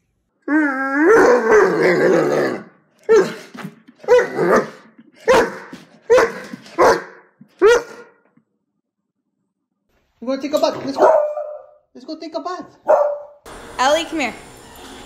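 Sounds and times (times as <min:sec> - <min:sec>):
dog howling: 0:00.4 - 0:03.4, 0:04.0 - 0:06.3
dog barking: 0:04.1 - 0:08.2, 0:10.9 - 0:11.8, 0:12.8 - 0:13.4.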